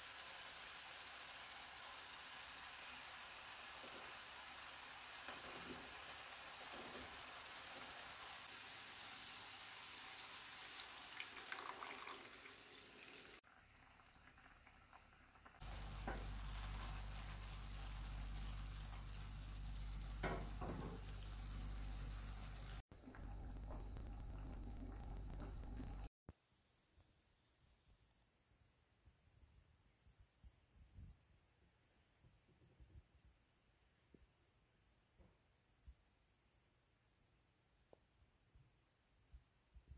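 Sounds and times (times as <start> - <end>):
sauce simmering with pops: 0.0 - 26.1
sauce sizzling in a skillet: 0.0 - 26.1.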